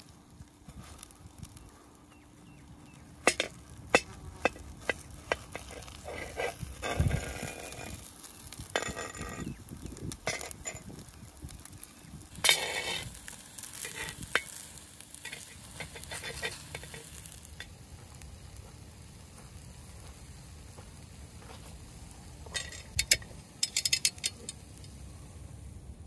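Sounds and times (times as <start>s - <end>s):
food sizzling in oil: 0.0s - 24.9s
metal spatula scraping griddle: 3.2s - 11.0s, 12.3s - 17.7s.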